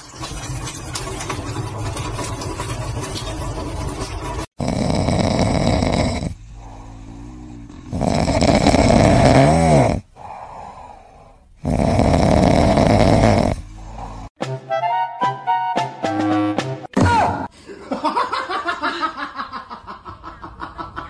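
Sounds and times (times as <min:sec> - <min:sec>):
cat snoring: 0:04.6 - 0:14.3
cat breathing: 0:10.1 - 0:11.6.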